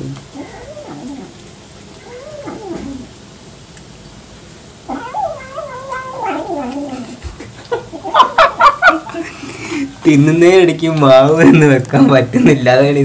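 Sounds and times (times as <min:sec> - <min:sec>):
cat yowling: 0:00.4 - 0:01.4, 0:02.0 - 0:03.2, 0:04.8 - 0:07.2.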